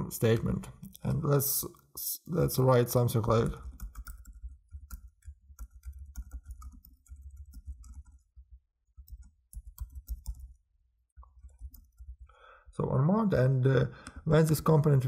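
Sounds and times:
computer keyboard typing: 3.3s - 10.6s, 11.2s - 12.4s.

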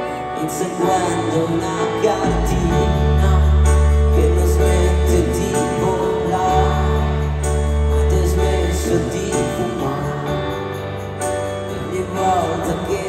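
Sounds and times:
live band playing pop song: 0.0s - 13.0s
deep sustained bass notes: 2.2s - 9.4s.

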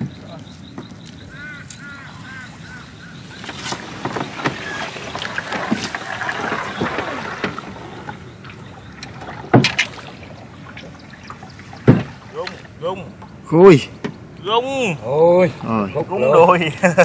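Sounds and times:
water splashing and dripping: 0.0s - 14.4s
fish trap rattling: 3.4s - 8.3s
loud knocks: 11.8s - 12.2s.

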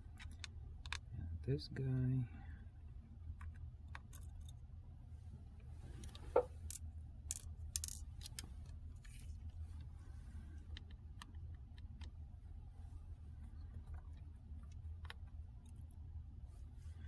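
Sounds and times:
steady low hum: 0.0s - 17.0s
small metal parts clicking: 3.4s - 4.6s, 6.1s - 9.2s.

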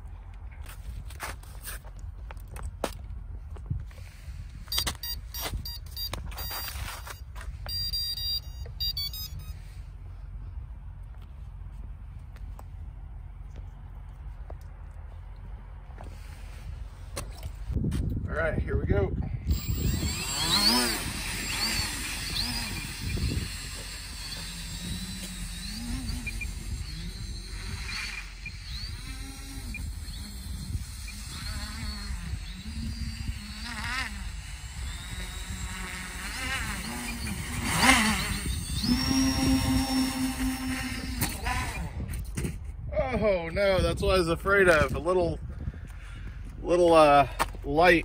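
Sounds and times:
electric motors whining: 4.6s - 10.2s, 19.4s - 42.4s
short high beeps: 4.7s - 9.7s.

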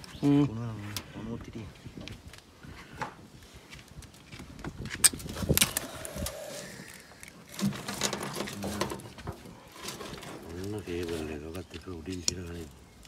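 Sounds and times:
wire snapping: 4.9s - 8.9s.

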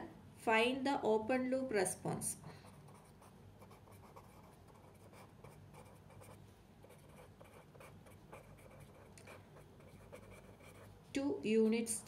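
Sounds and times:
marker writing on paper: 2.8s - 10.9s.

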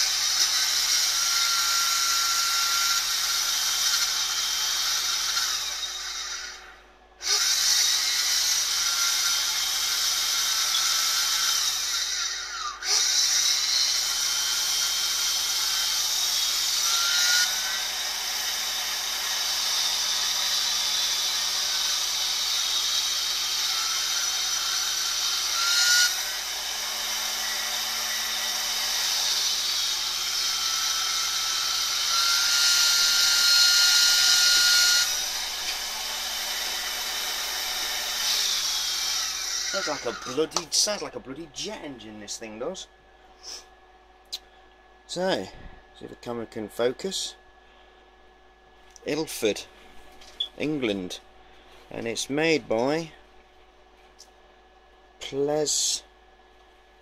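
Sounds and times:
blower motor high-pitched whine: 0.0s - 42.5s.

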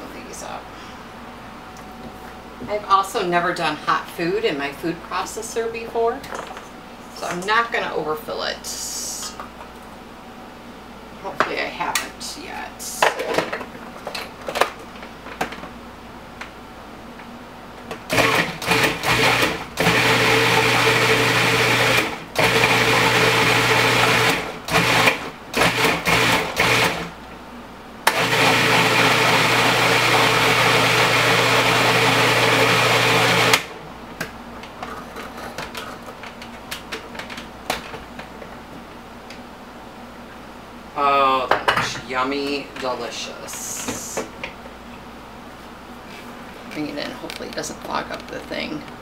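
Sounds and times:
food processor motor running: 18.1s - 27.1s, 28.1s - 33.7s.

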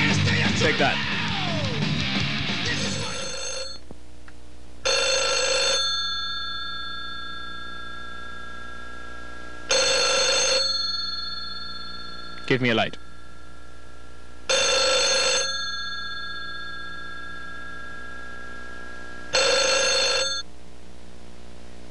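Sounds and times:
loud music: 0.0s - 3.0s
telephone bell ringing: 2.7s - 3.8s, 4.8s - 20.5s.

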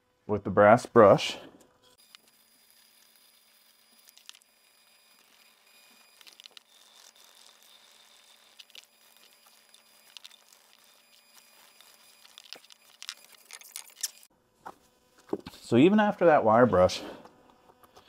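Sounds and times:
wire brush scratching metal: 5.1s - 14.3s.

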